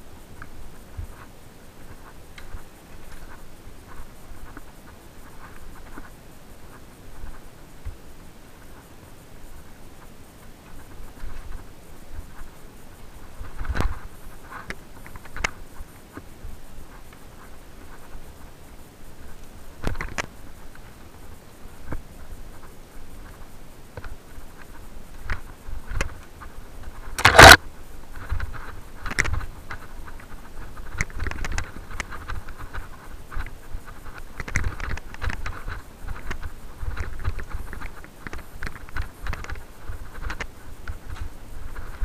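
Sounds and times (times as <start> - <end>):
mountain bike rattling on dirt: 24.1 - 42.0.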